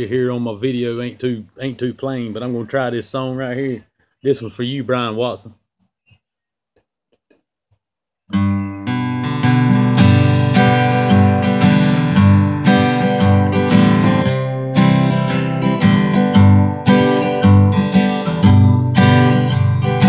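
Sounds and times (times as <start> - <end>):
acoustic guitar playing chords: 8.3 - 20.0.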